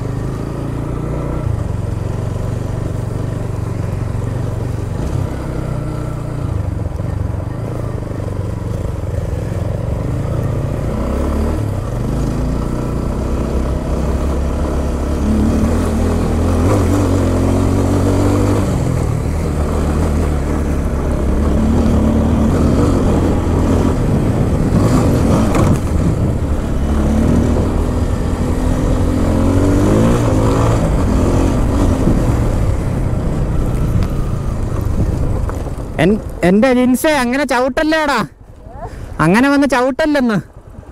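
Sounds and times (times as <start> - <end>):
motorcycle engine revving: 0.0 - 40.9.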